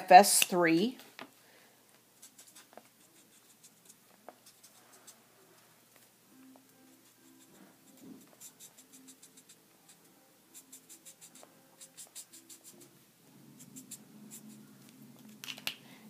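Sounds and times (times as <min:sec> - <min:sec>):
marker scratching on paper: 0:02.2 - 0:05.2, 0:06.8 - 0:15.4.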